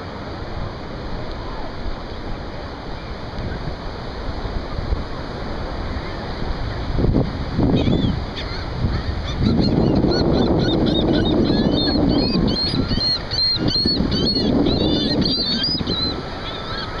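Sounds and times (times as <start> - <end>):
surf: 0.0 - 17.0
wind: 0.0 - 17.0
gulls calling: 7.7 - 17.0.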